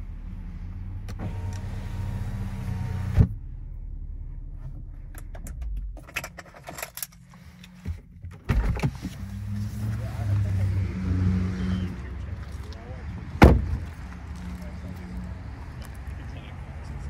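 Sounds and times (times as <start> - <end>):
car engine idling: 0.0 - 6.6.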